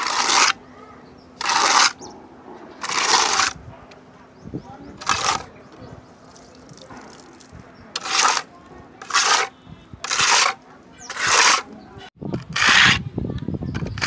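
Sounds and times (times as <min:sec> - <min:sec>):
trowel scraping wall coating: 0:00.0 - 0:00.6, 0:01.4 - 0:03.6, 0:05.0 - 0:05.5, 0:06.8 - 0:11.8, 0:12.4 - 0:13.1.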